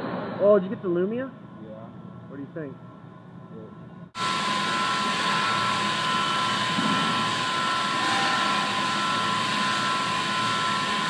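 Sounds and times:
machine running with whine: 0:04.2 - 0:11.0.

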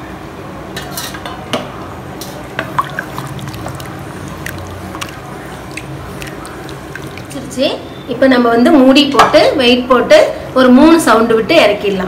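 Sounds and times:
liquid sloshing and dripping: 0:02.6 - 0:07.6.

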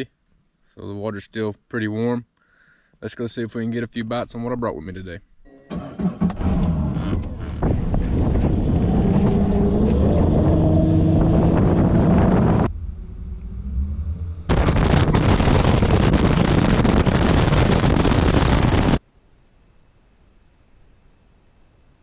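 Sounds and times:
wind buffeting microphone: 0:07.5 - 0:19.0.

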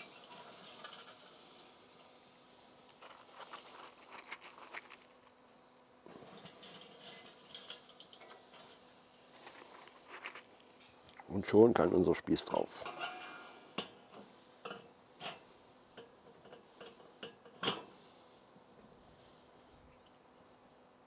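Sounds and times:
wood chips rustling and clicking: 0:02.8 - 0:11.3.

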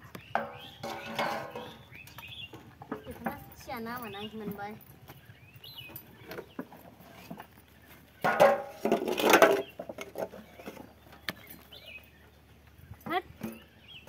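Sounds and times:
steel plate scraping on trough: 0:00.4 - 0:01.8, 0:08.2 - 0:10.9.

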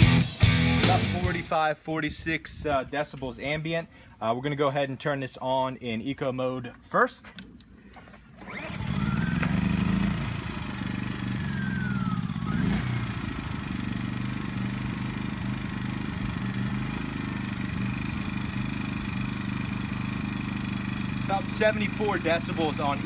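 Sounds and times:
generator running: 0:00.0 - 0:01.6, 0:07.3 - 0:23.0.

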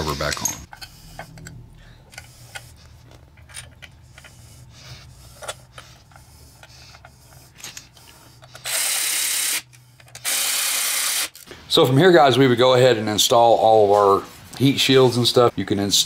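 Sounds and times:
metal bolts clicking and rattling: 0:00.3 - 0:04.4
cordless electric ratchet spinning: 0:08.4 - 0:11.4.

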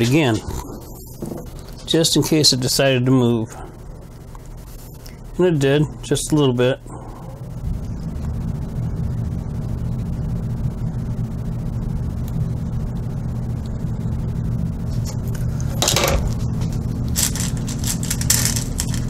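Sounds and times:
furnace humming: 0:00.0 - 0:19.0
metal pins clattering in a dish: 0:17.2 - 0:19.0.

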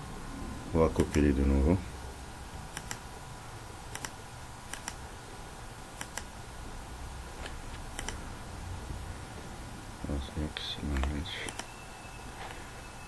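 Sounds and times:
computer mouse double clicks: 0:03.9 - 0:05.0.

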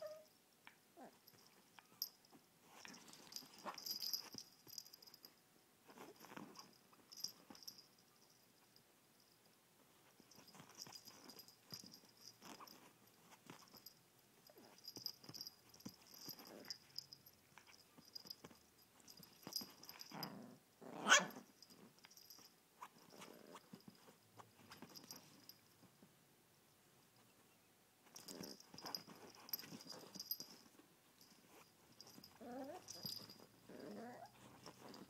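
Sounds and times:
dog barking: 0:21.0 - 0:21.4
dog growling: 0:33.7 - 0:34.3.

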